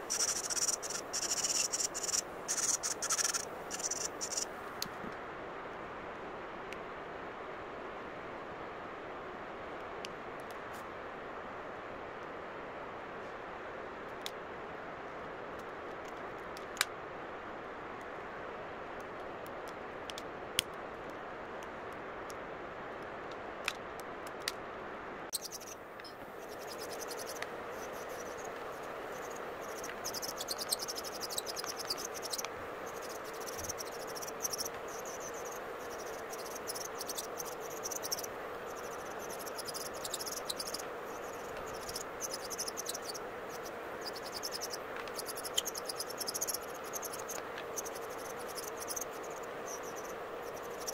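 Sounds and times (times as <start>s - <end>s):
dust collector fan: 25.4s - 50.9s.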